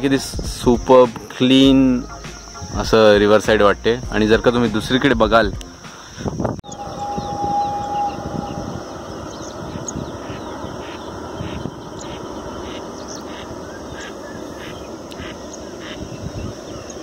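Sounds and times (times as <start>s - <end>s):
ducks quacking: 8.6s - 17.0s.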